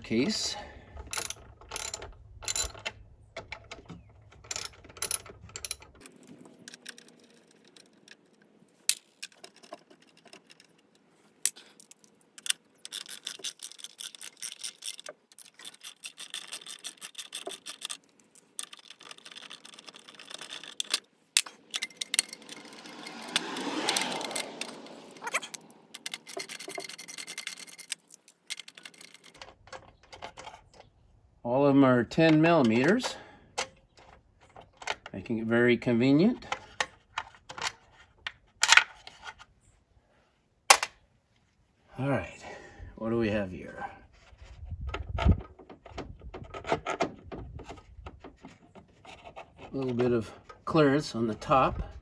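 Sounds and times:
rubbing and scraping: 44.0s - 52.0s.

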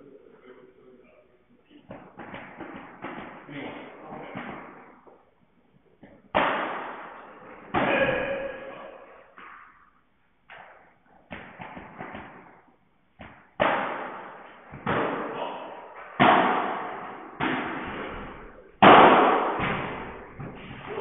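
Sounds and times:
rackets hitting ball: 1.7s - 21.0s.

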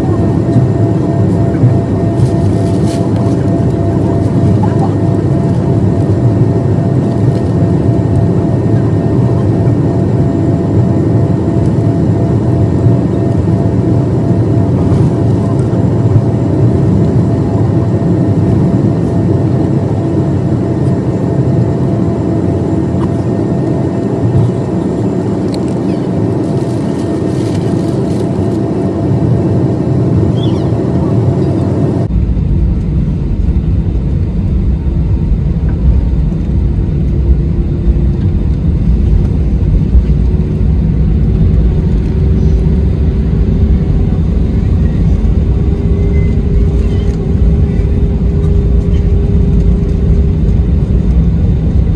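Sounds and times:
jet airliner cabin noise: 0.0s - 51.9s
engine tone rising in pitch: 44.0s - 50.3s.

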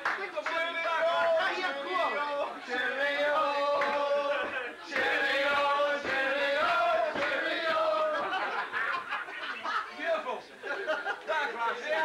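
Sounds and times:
men singing together: 0.6s - 8.7s.

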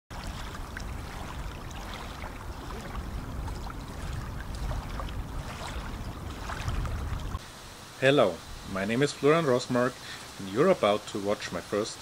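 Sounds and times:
small waves lapping at shore: 0.1s - 7.4s
wind rumble: 0.1s - 7.4s.

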